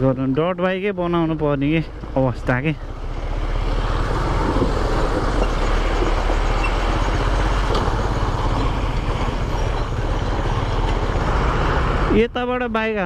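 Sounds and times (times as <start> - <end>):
wind noise on microphone: 3.9 - 8.7
motorcycle engine running: 4.1 - 12.8.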